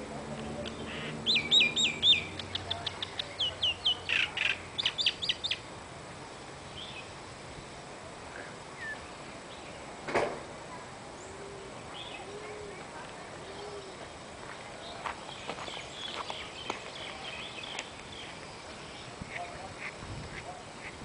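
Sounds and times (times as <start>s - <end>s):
songbird chirping and whistling: 0.7s - 5.6s, 8.8s - 9.1s.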